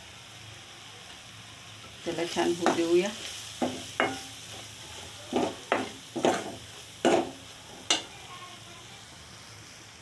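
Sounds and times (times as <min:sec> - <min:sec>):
faint oil sizzle: 0:00.0 - 0:10.0
metal ladle scraping a pan: 0:02.5 - 0:08.1.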